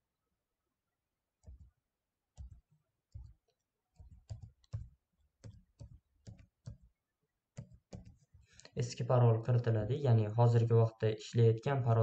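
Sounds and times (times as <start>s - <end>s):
faint typing on a keyboard: 1.4s - 1.8s, 2.4s - 8.9s.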